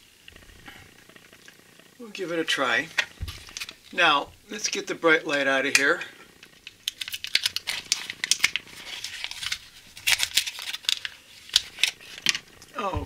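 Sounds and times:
foil wrapper tearing and crinkling: 2.9s - 4.0s, 6.4s - 12.7s.

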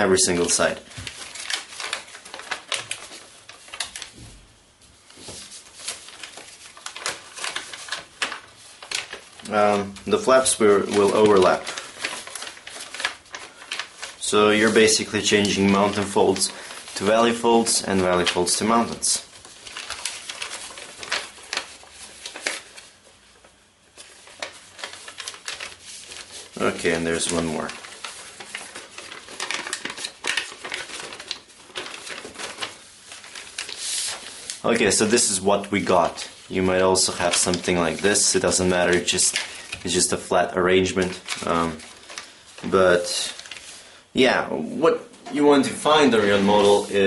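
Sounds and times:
paper crackling and rustling: 0.0s - 44.5s, 45.2s - 47.0s.

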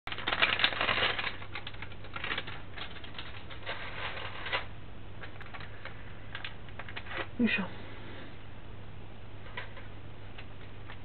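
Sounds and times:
plastic sachet crinkling: 0.1s - 7.3s
low steady hum: 0.1s - 11.0s.

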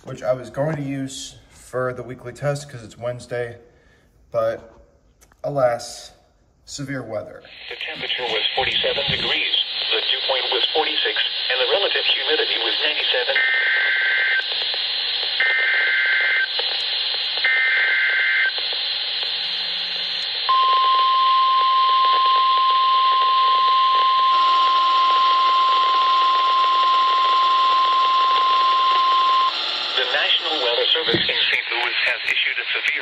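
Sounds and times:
radio static hiss: 6.8s - 33.0s
steady warning alarm tone: 17.4s - 31.4s.

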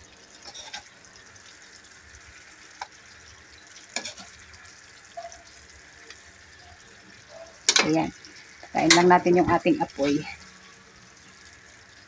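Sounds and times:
food sizzling in a wok: 0.0s - 12.0s
metal ladle clinking on pan: 7.7s - 8.0s, 8.9s - 9.1s.

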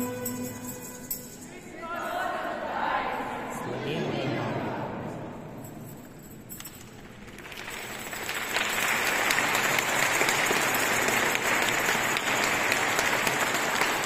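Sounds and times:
audience applauding: 7.3s - 14.0s.

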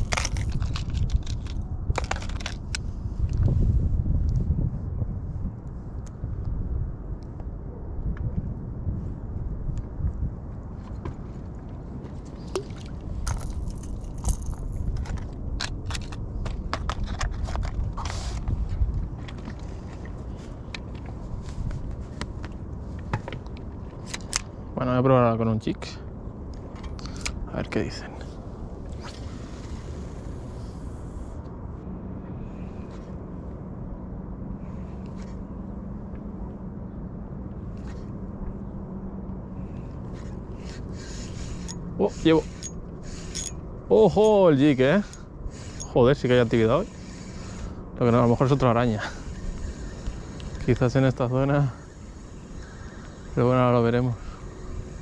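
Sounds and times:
wind rumble on microphone: 0.0s - 55.0s
motor hum: 28.2s - 55.0s
fishing reel clicking: 40.6s - 43.6s, 45.0s - 47.8s, 49.0s - 53.6s.

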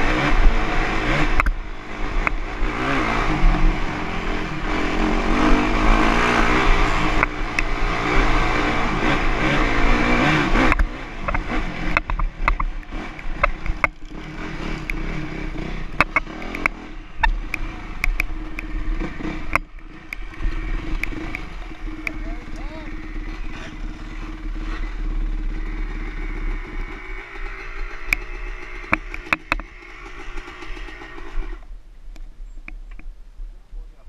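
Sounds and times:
dirt bike engine revving: 0.0s - 31.7s
sharp clicks and knocks: 1.3s - 1.6s, 2.2s - 2.4s, 7.1s - 7.8s, 10.5s - 22.7s, 26.7s - 33.1s.

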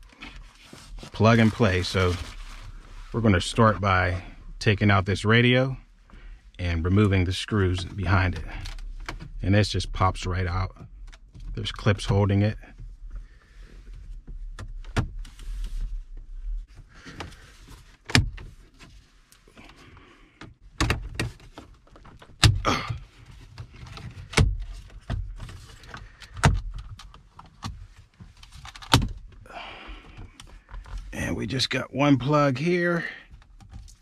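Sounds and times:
plastic scraping and rustling: 0.0s - 3.6s.

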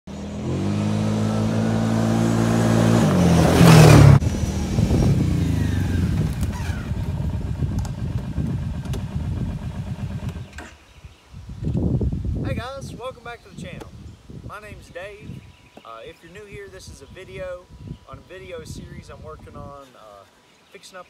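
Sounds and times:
quad bike engine running: 0.1s - 10.6s.

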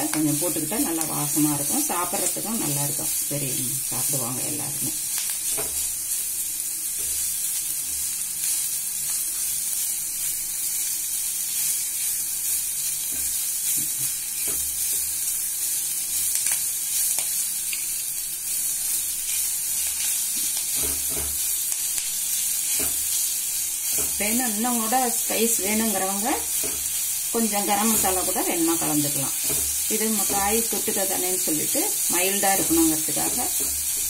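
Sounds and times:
onions sizzling in hot oil: 0.0s - 34.0s
spatula scraping and knocking pot: 20.7s - 21.4s, 22.7s - 23.0s, 29.3s - 30.6s.

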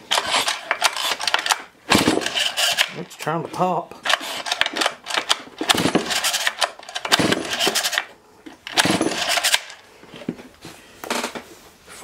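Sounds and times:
chainsaw engine turning over: 0.0s - 3.0s, 4.1s - 9.8s
chainsaw pull starter: 0.1s - 3.0s, 4.1s - 9.8s.

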